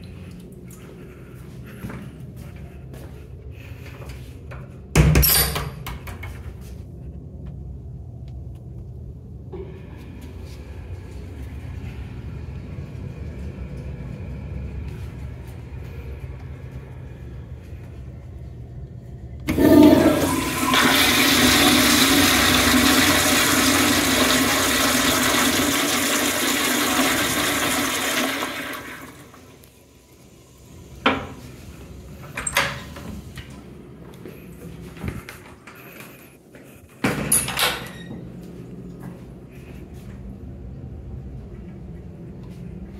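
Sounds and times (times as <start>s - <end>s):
toilet flushing: 19.4s - 32.8s.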